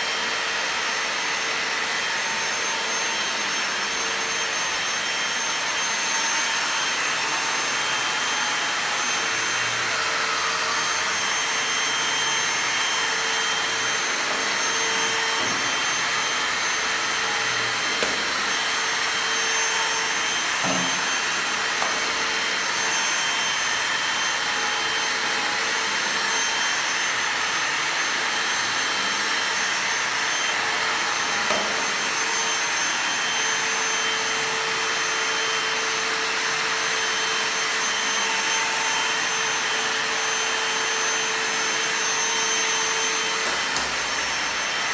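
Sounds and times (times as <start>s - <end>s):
vacuum cleaner high whine: 0.0s - 44.9s.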